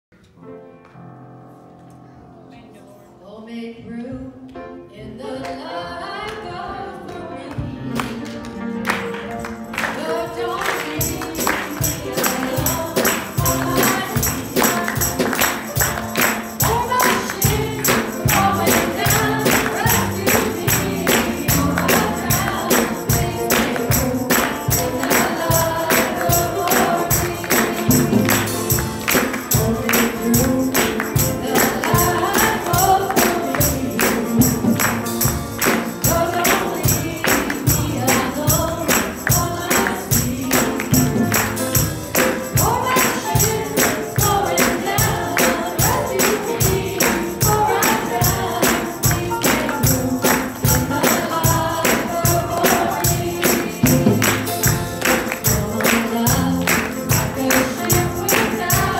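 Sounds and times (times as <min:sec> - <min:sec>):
instrumental accompaniment: 0:06.1 - 0:58.9
tambourine beat: 0:09.2 - 0:58.9
woman singing gospel: 0:09.9 - 0:28.5, 0:29.1 - 0:34.9, 0:35.7 - 0:41.4, 0:42.2 - 0:54.5, 0:55.1 - 0:58.9.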